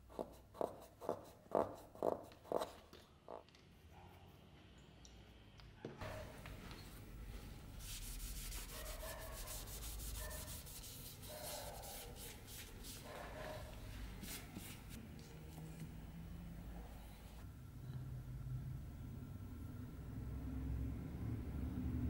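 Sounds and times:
cloth rubbing wood: 7.8s - 15.0s.

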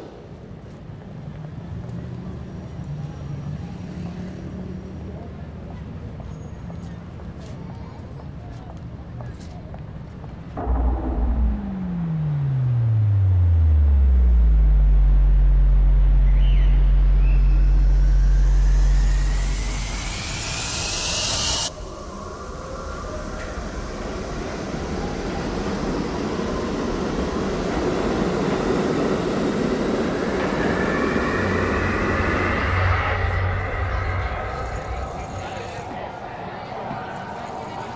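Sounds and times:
deep bass tone sliding down: 10.6s - 36.4s
sub-bass drone: 10.6s - 36.6s
rising whoosh: 10.6s - 36.9s
rumbling noise: 10.6s - 37.2s.

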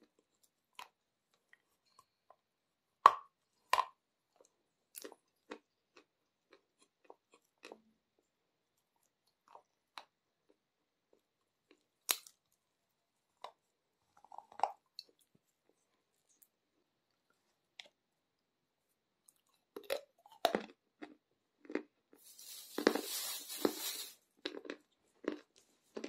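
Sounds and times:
chalk crunching while chewed: 19.2s - 26.0s.

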